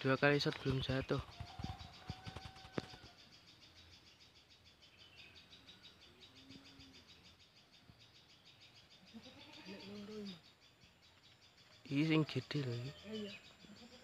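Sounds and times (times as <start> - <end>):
insect chirring: 0.0 - 14.0
faint murmuring voice: 9.1 - 10.4, 12.2 - 14.0.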